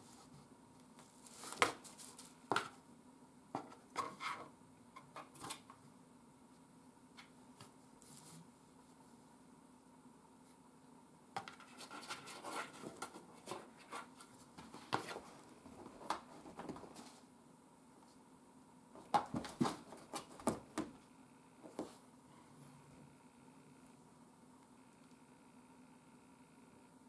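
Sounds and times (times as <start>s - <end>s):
cat scratching cardboard and carpet: 11.4s - 17.2s.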